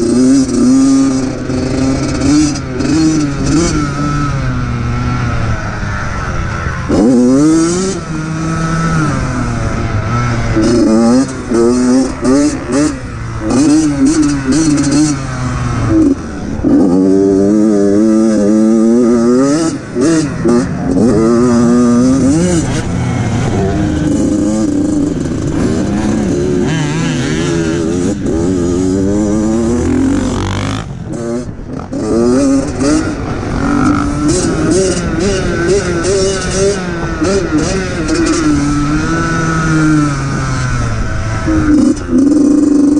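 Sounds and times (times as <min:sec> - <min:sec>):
dirt bike engine revving: 0:00.0 - 0:42.9.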